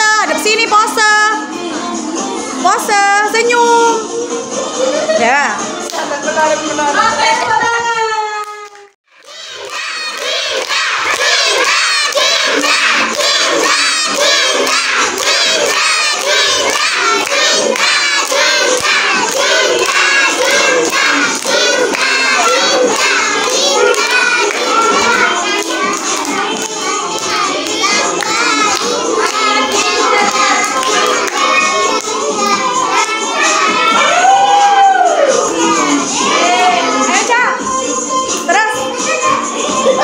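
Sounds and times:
children singing and shouting: 0.0 - 5.9, 6.8 - 40.0.

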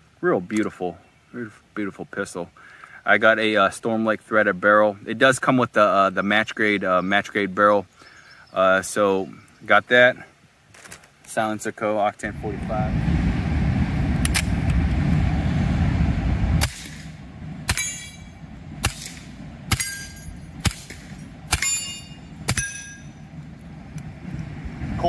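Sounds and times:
low rumble: 12.2 - 25.0
suppressed pistol shots: 16.6 - 18.1, 18.8 - 23.0
steel target ringing: 17.7 - 23.3.

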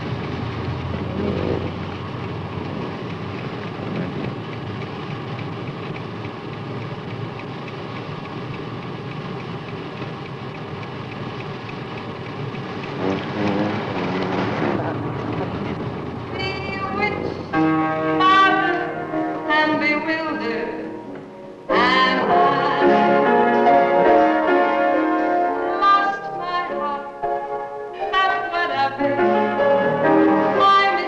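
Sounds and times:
car road and engine noise: 0.0 - 21.7.

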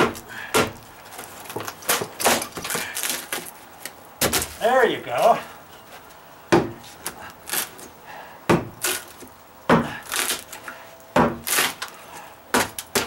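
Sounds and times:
wood splintering and crumbling: 0.0 - 4.7, 8.8 - 13.0.

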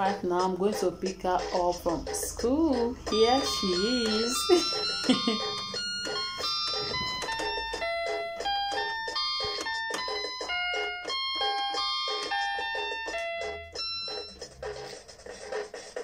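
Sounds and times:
toy keyboard playing notes: 1.5 - 16.0.

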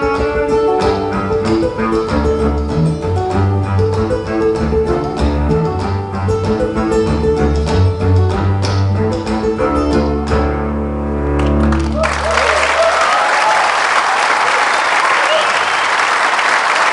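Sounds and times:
ukulele: 0.0 - 12.0
audience applause and cheering: 11.4 - 16.9.

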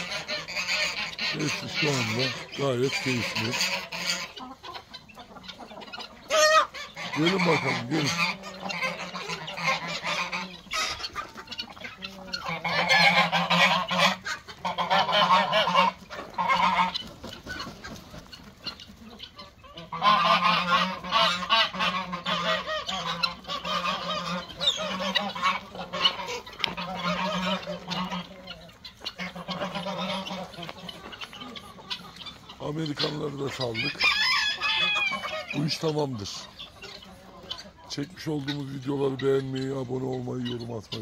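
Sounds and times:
poultry flock calling: 0.0 - 41.0.

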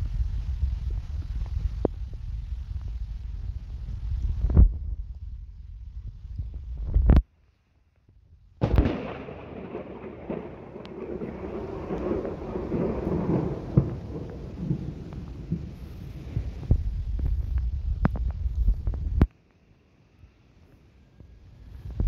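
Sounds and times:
thunder clap and rumble: 8.6 - 19.2.

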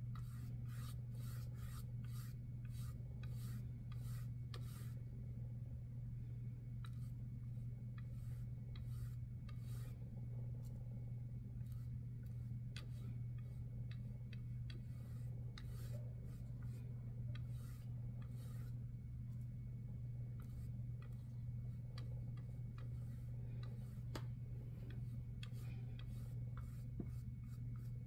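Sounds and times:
steady low hum: 0.0 - 28.0
paintbrush scratchy swishes: 0.1 - 5.1, 6.8 - 10.8, 11.6 - 19.5, 20.4 - 28.0.

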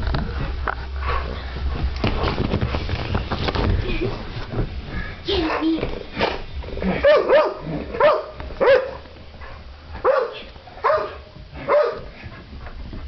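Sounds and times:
dog barking: 7.0 - 9.0, 10.0 - 12.1.

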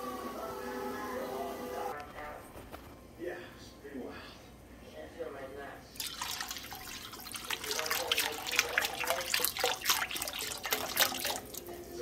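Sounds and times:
water pouring into a wok: 6.0 - 11.7.

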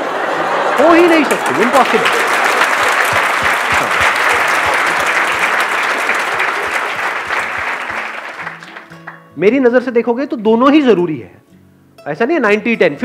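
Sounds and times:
audience applauding: 0.0 - 9.2.

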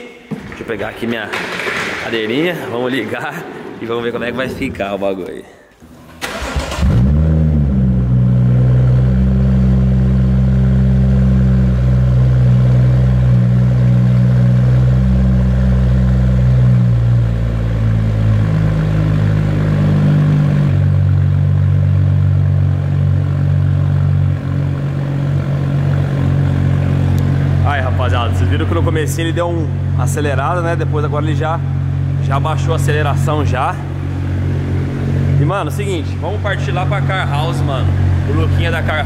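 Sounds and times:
car engine idling fast: 8.5 - 39.0.

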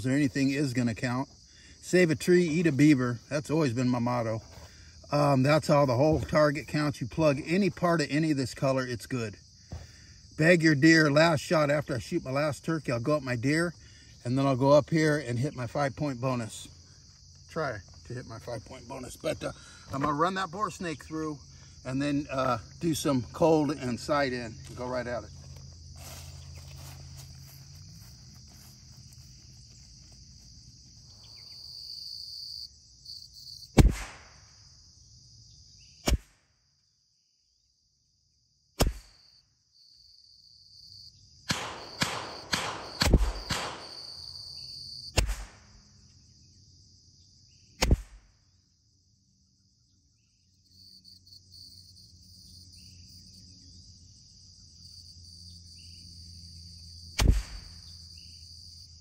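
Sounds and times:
crickets droning: 0.0 - 59.0
rifle shots: 33.8 - 34.4, 41.5 - 44.0, 45.2 - 45.7, 57.2 - 57.7.

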